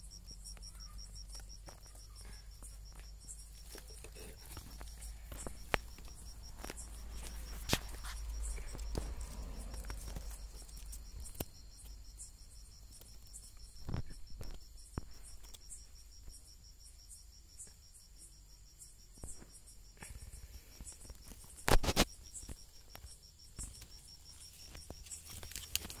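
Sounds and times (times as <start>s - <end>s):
crickets chirping: 0.0s - 26.0s.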